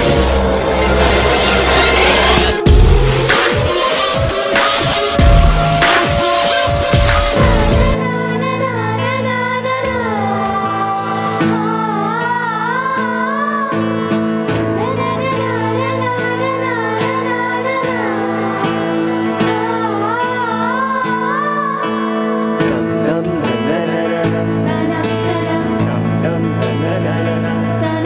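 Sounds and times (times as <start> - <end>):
guitar: 0.0 - 28.0
keyboard: 0.0 - 28.0
women singing with vibrato: 5.8 - 23.1, 24.4 - 26.0.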